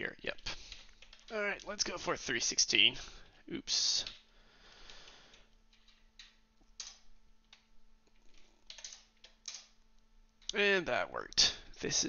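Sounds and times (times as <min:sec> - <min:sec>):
keyboard keystrokes: 0:05.7 - 0:09.7.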